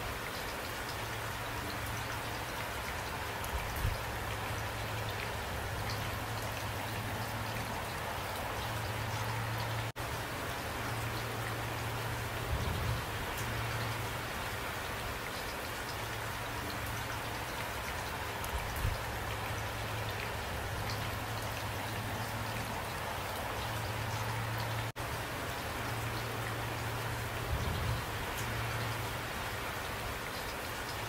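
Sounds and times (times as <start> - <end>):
steady rain hiss: 0.0 - 31.0
rain drop ticks: 0.1 - 31.0.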